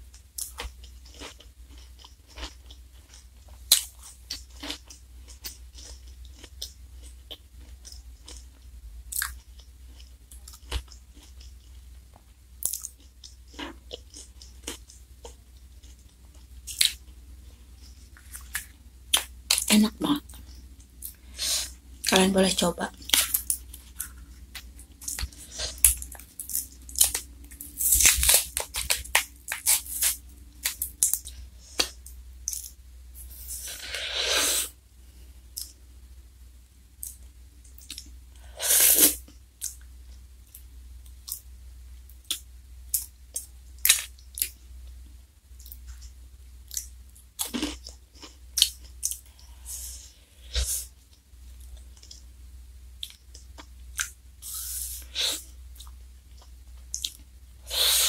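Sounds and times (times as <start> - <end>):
crunchy chewing: 0.4 - 11.9, 23.0 - 34.0.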